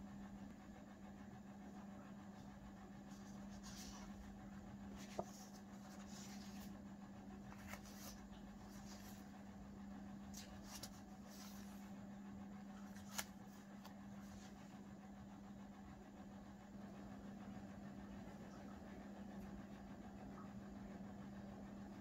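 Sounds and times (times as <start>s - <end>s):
steady low hum: 0.0s - 22.0s
paper rustling and tapping: 5.0s - 6.7s, 7.5s - 9.2s, 10.3s - 11.8s, 12.8s - 14.4s.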